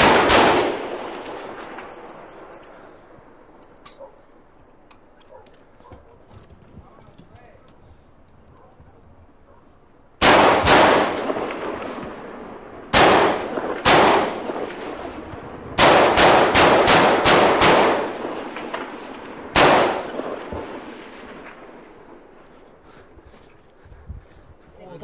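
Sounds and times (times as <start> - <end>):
rifle shots echoing: 0.0 - 4.2, 10.2 - 23.0.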